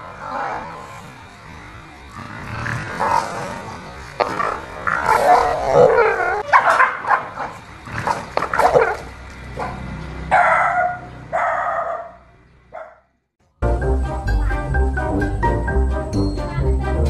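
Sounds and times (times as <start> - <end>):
dog barking and yelping: 5.0 - 7.6, 8.4 - 12.2, 12.8 - 13.0.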